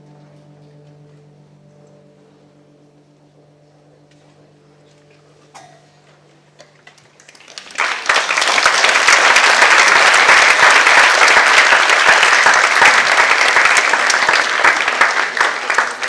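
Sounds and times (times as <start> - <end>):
audience applause: 7.0 - 16.0.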